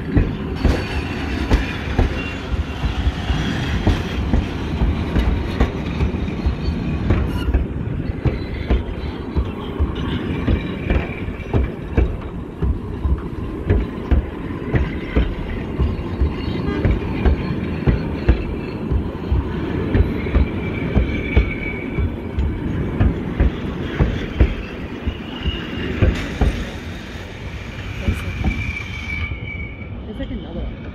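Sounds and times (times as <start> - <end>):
train wheels clicking over rail joints: 0.0 - 29.1
high-pitched wheel squeal: 6.2 - 11.4, 15.8 - 22.8, 23.6 - 30.6.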